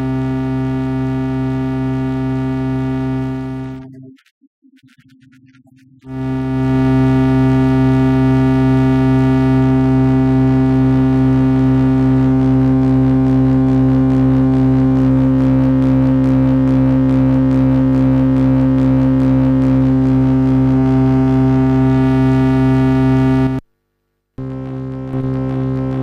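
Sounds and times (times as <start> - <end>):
low buzzing synth drone: 0.0 - 3.9, 6.0 - 23.6, 24.4 - 26.0.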